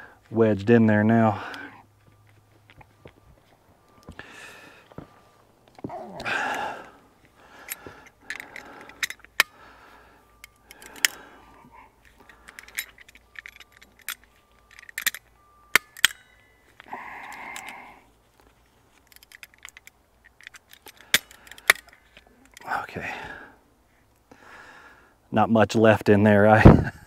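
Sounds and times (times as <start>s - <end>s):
metal tools clinking on steel bolt: 7.6s - 9.6s, 10.4s - 17.9s, 18.9s - 22.7s.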